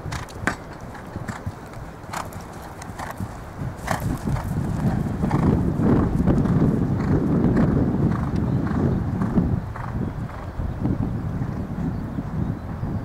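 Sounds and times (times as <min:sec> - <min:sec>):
horse hoofbeats on grass: 0:00.0 - 0:11.7.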